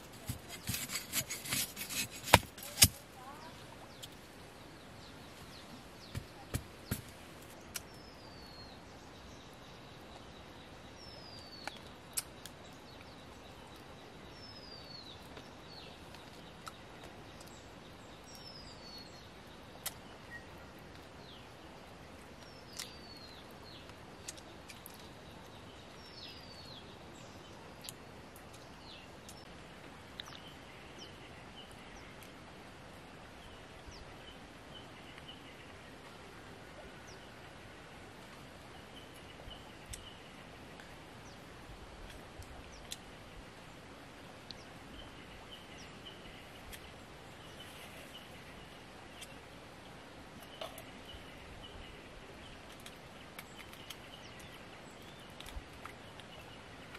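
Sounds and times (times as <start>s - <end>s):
machete knocks and clicks: 0.2s - 3.0s.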